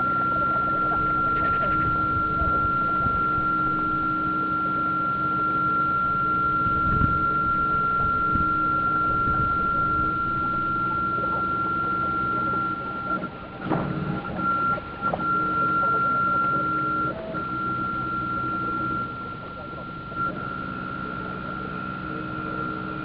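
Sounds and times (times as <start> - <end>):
high-pitched electrical whine: 0.0 - 23.0
low electrical hum: 0.0 - 23.0.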